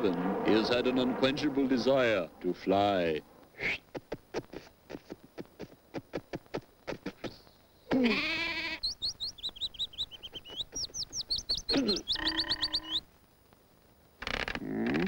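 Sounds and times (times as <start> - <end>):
sheep bleating: 7.9 - 8.9
bird chirping rapidly: 8.8 - 13.0.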